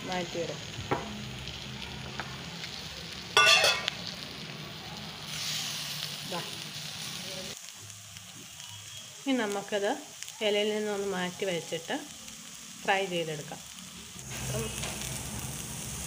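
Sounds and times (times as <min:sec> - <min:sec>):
fish sizzling in oil: 0:00.0 - 0:16.0
steel vessel clanking: 0:03.4 - 0:04.0.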